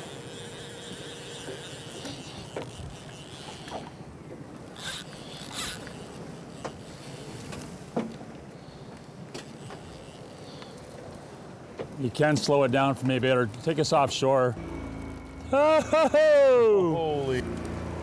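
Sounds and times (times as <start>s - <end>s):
thin steady whine: 0.0s - 3.9s, 14.5s - 17.8s
outboard motor running: 0.0s - 7.5s, 14.6s - 18.0s.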